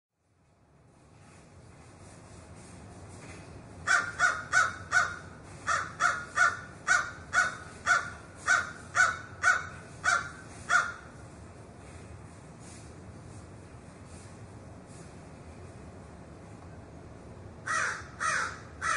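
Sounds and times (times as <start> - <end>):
crow cawing: 3.9 - 11.1, 17.6 - 18.9.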